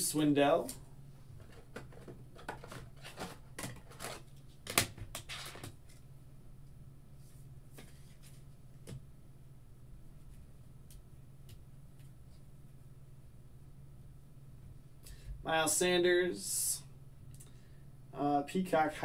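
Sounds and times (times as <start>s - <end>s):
low steady hum: 0.0s - 19.0s
trading cards rustling and clicking: 1.4s - 6.0s.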